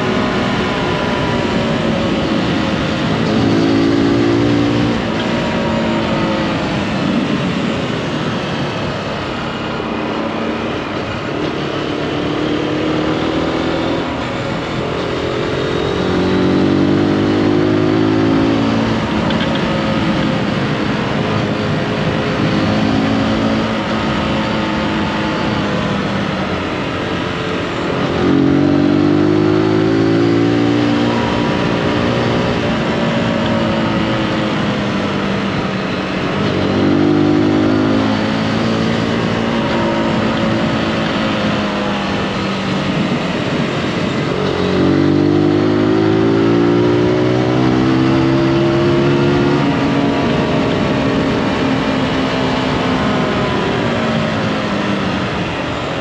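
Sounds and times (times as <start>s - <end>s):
motorcycle engine accelerating: 0.0s - 56.0s
wind over microphone: 0.0s - 56.0s.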